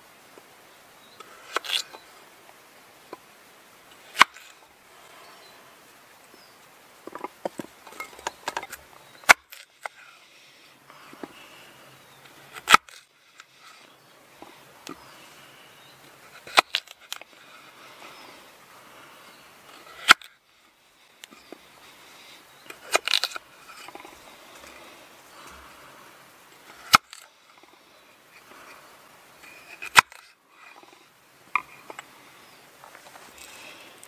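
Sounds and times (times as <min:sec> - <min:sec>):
soft handling noises: 0:31.5 - 0:34.0.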